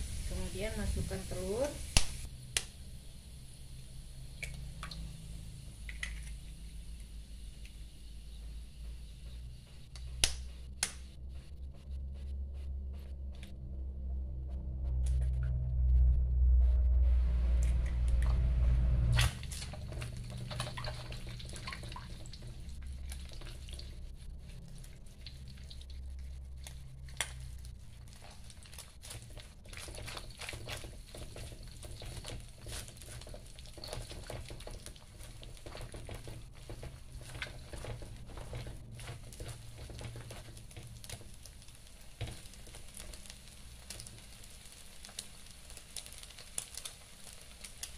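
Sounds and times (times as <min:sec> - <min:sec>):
egg sizzling in a wok: 0:00.0 - 0:11.2, 0:19.1 - 0:47.9
low rumble: 0:00.0 - 0:29.6
spatula scraping and tapping wok: 0:19.4 - 0:44.4.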